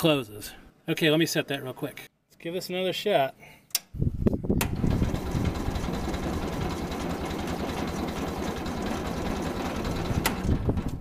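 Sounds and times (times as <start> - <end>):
engine cranking without starting: 4.6 - 11.0.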